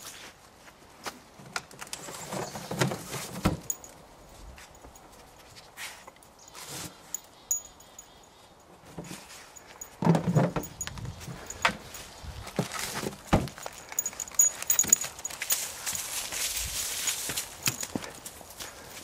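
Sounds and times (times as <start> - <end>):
packaging rustling and clattering: 11.5 - 18.4.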